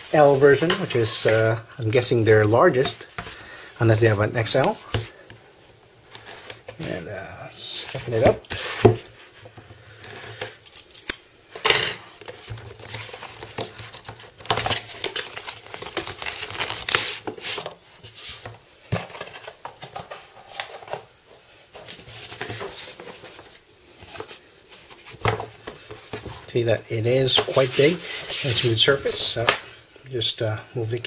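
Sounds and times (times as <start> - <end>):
mouse pad sliding from box: 27.4 - 29.0.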